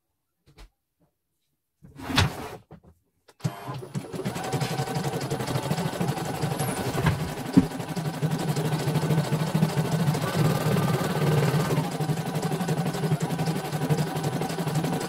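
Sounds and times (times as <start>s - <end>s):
embroidery machine rattling: 4.2s - 15.0s.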